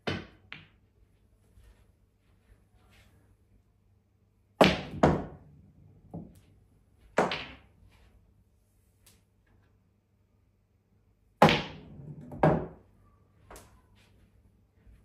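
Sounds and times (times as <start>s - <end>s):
pool balls clacking: 7.1s - 7.7s, 11.4s - 12.8s.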